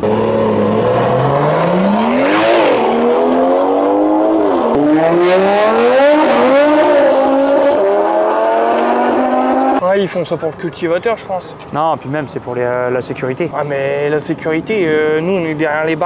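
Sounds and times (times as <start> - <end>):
car engine revving through gears: 0.0 - 9.8.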